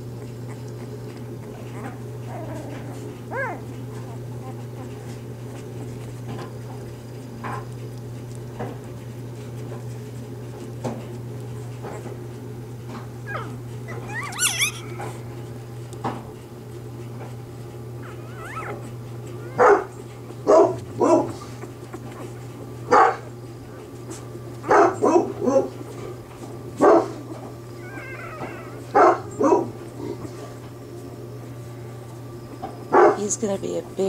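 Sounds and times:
puppies squeaking and whimpering: 0.0s - 15.9s, 16.7s - 30.6s
puppy yelps: 0.5s - 5.2s, 13.2s - 15.2s, 18.0s - 23.2s, 27.7s - 29.7s.

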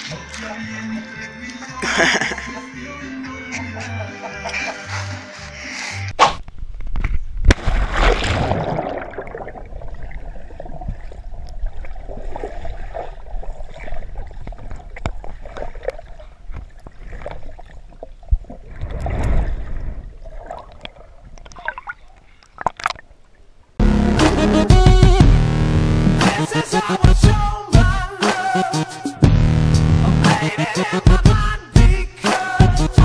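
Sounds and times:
underwater splash: 7.4s - 23.2s
rush of water: 7.5s - 17.7s.

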